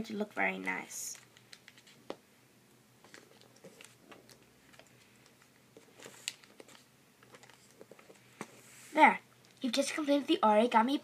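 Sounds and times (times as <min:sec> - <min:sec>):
paper rustling and creasing: 0:01.1 - 0:02.2, 0:03.0 - 0:09.0
paper crinkle: 0:01.2 - 0:02.1, 0:03.0 - 0:08.5.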